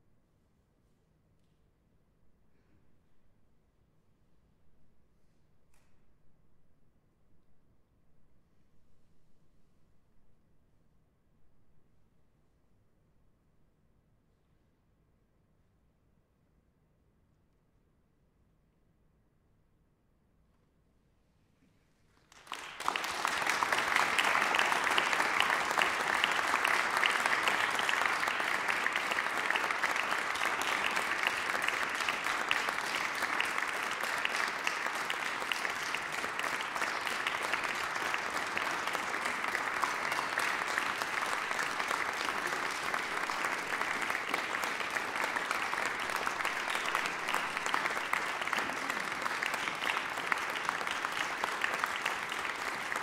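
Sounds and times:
audience applauding: 22.3s - 53.0s.

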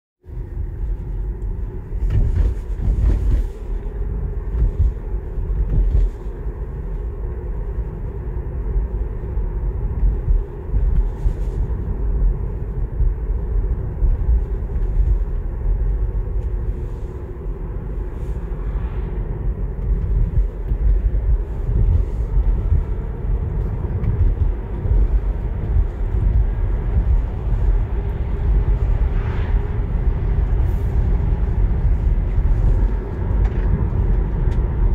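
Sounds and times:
road and tyre noise in car: 0.2s - 34.9s
car passing: 12.7s - 34.9s.

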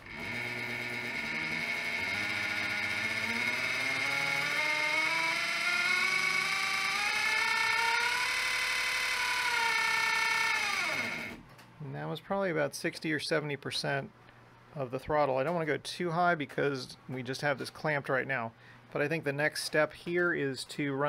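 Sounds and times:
constant high tone: 0.0s - 11.4s
electric motor whining: 0.0s - 11.4s.

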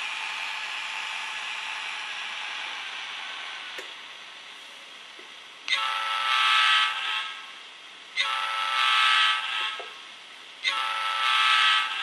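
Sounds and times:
model train horn blasts: 5.7s - 7.2s, 8.2s - 9.8s, 10.6s - 12.0s.

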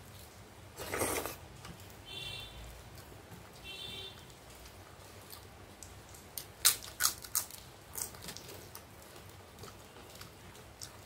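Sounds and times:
crunchy food chewing: 6.1s - 11.0s.

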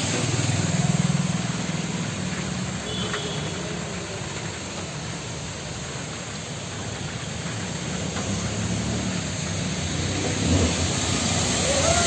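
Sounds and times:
heavy rain on standing water: 0.0s - 12.0s
passing traffic engine hum: 7.4s - 12.0s.

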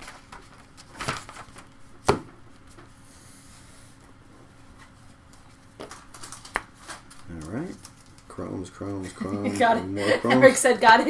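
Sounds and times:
cards clicking while shuffled: 5.3s - 9.0s.

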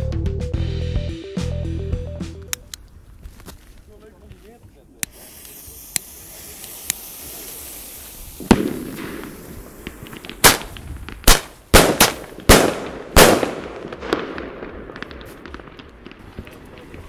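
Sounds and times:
small firework cracks: 5.0s - 17.0s
firework loud bangs: 5.6s - 17.0s
firework deep thump: 8.4s - 11.2s.

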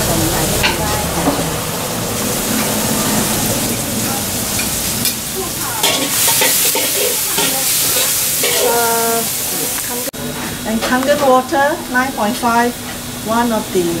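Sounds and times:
food sizzling in hot oil: 0.0s - 14.0s
metal spatula scraping a wok: 5.8s - 9.2s.

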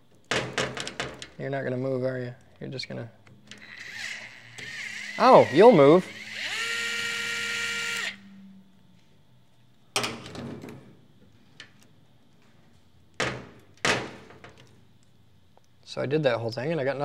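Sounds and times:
small electric motor whining: 3.5s - 8.5s.

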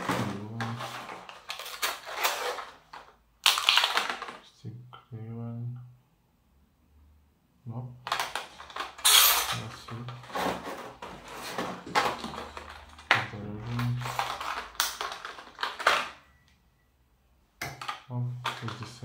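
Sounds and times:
plastic blister packs crinkling: 0.1s - 4.4s, 10.1s - 16.2s.

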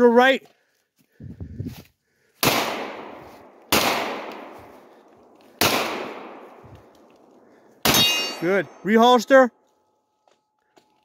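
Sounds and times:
pistol shots with echo: 2.4s - 4.6s, 5.6s - 6.6s.

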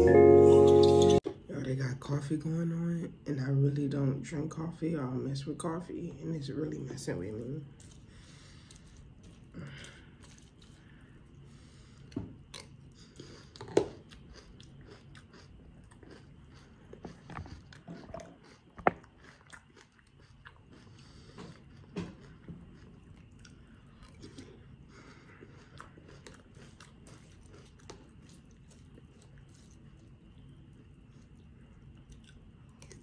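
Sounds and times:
chewing and crunching cereal: 6.6s - 33.0s.

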